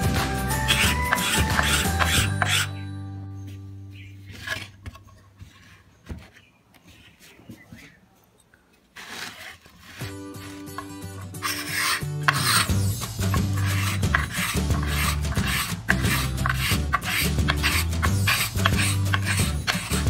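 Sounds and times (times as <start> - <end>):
sandpaper scraping wood: 0.0 - 2.7, 9.0 - 20.0.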